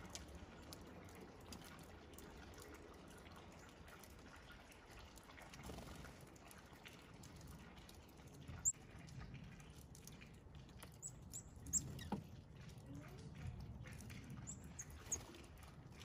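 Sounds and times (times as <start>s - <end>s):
small birds chipping: 10.8s - 12.6s, 13.8s - 15.4s.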